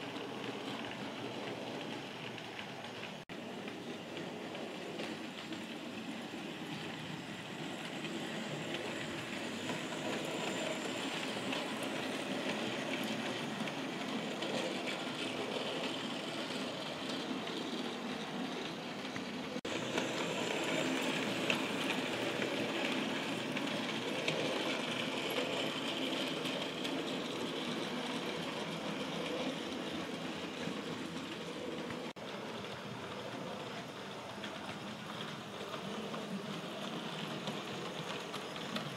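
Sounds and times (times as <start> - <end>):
model train motor whirring: 4.1 - 33.0.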